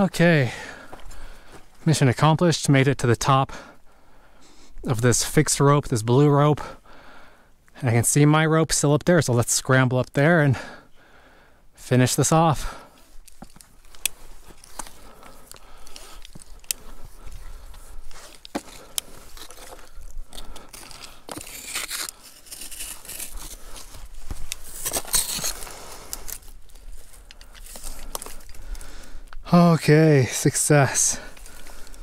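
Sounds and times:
rope and clothing scraping on rock: 12.2 - 28.8.

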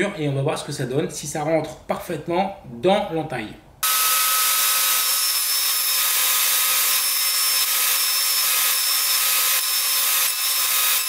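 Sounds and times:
table saw cutting wood: 3.8 - 11.0.

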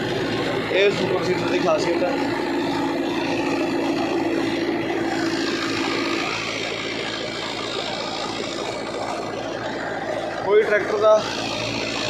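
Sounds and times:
tractor engine running: 0.0 - 12.0
humming tone: 2.1 - 12.0.

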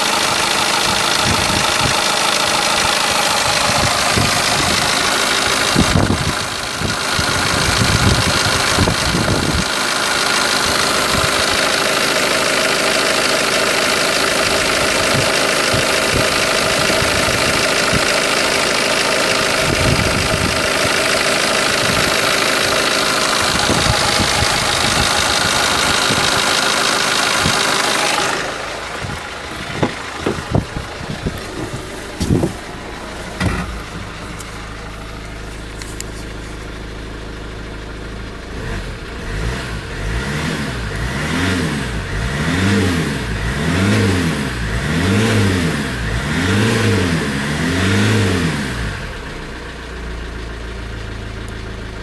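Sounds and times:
engine revving: 0.0 - 36.2, 38.4 - 49.5
diesel engine idling: 0.0 - 52.0
sharp engine knocks: 29.0 - 32.7, 33.3 - 34.7.

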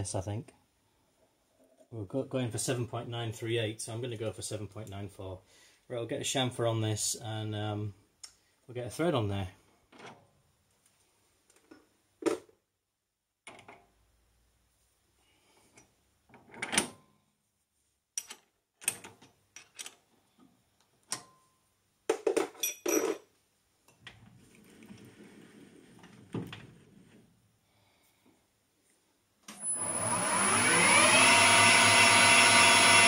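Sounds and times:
lathe running: 29.6 - 33.0.

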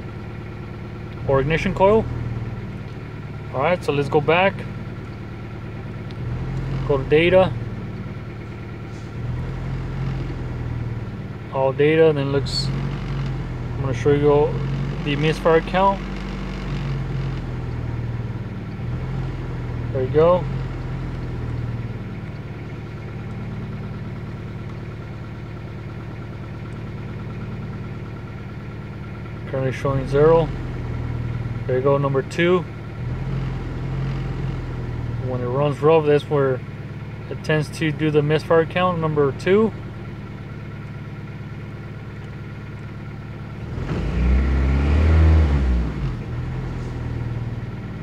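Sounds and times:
car engine idling rough: 0.0 - 48.0
engine revving: 5.7 - 22.2, 29.4 - 39.8, 42.6 - 48.0.

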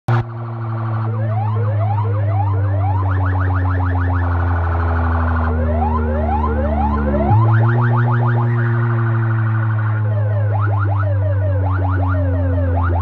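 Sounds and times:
rising siren-like sweeps: 0.1 - 13.0
deep bass tone: 4.3 - 13.0.

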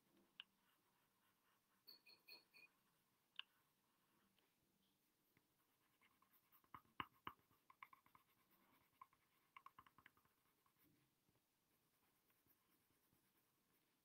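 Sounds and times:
pencil ticks: 0.2 - 4.6, 5.3 - 10.9
pencil scratching on paper: 0.3 - 4.5, 5.6 - 14.0.

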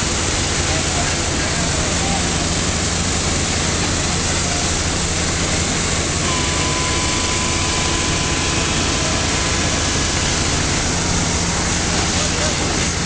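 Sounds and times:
heavy engine running: 0.0 - 13.0
thin steady whine: 0.0 - 13.0.

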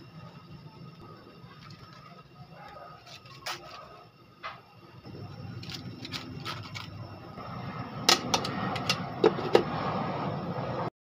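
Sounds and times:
low rushing noise: 5.1 - 10.9.

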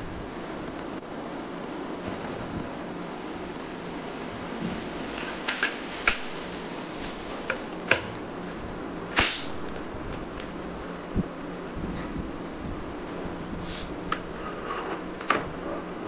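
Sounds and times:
steady hiss: 0.0 - 16.0
louder plastic snap: 9.2 - 9.8.

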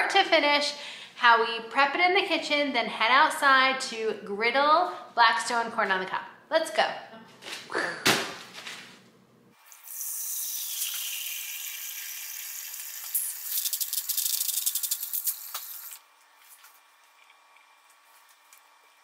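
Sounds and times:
tap water pouring into a pot: 9.8 - 16.0.

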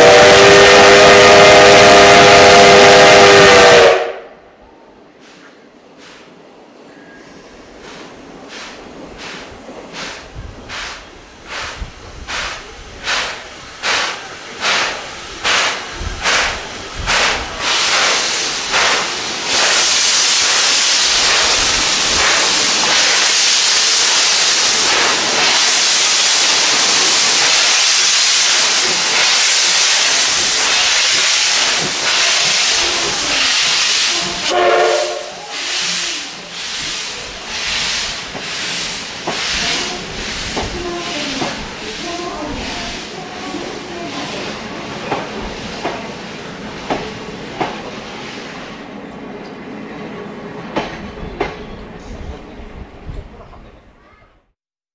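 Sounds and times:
steam locomotive exhaust chuffs: 0.0 - 4.2, 7.8 - 46.1
loud steady hiss of steam: 0.0 - 4.3, 5.1 - 49.0.

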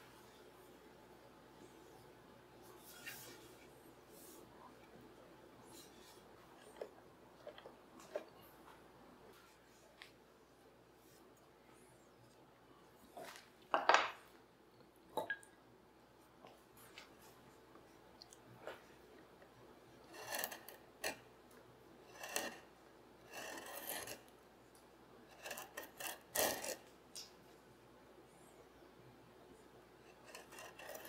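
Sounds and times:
steel tool scraping wood: 20.1 - 21.2, 22.1 - 22.7, 23.3 - 24.3, 25.3 - 26.8, 30.1 - 31.0.

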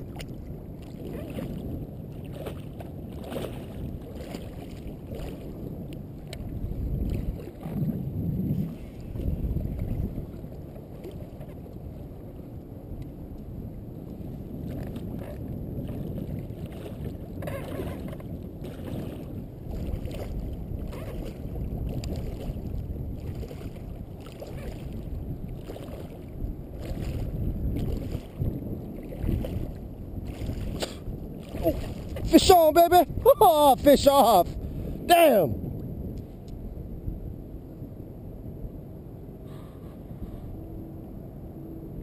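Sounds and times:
swim fins splashing water: 0.0 - 5.6, 14.8 - 34.4
wind and water rumble on microphone: 0.0 - 42.0.

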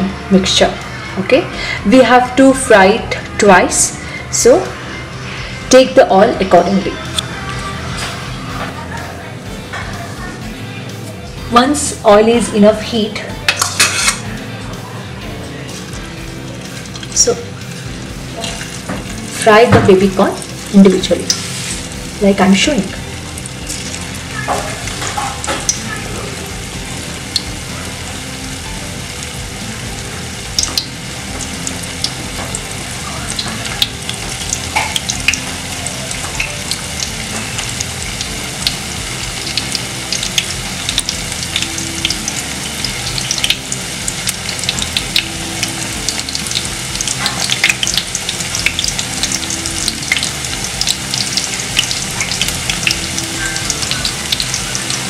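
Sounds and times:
deep-frying sizzle with crackling pops: 12.8 - 14.3, 15.9 - 55.0.

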